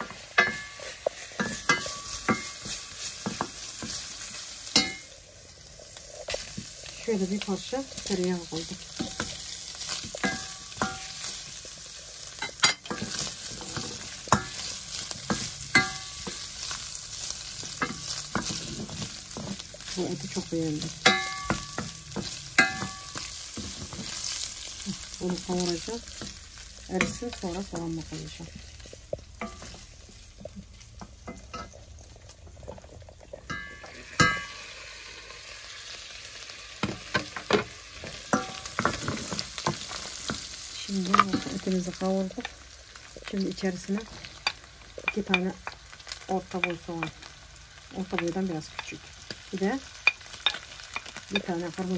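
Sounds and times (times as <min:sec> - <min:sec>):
meat and butter sizzling in a pan: 0:00.0 - 0:51.9
wooden spatula scraping a pan: 0:08.6 - 0:30.8
glass lid clinking: 0:33.5 - 0:34.6.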